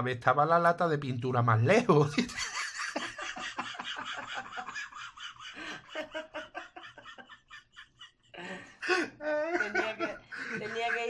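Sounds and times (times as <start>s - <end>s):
person laughing breathily: 3.1s - 11.0s.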